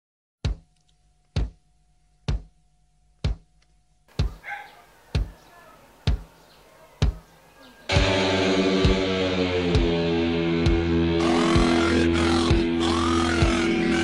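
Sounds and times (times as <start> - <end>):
faint dog barking: 4.2 - 7.9.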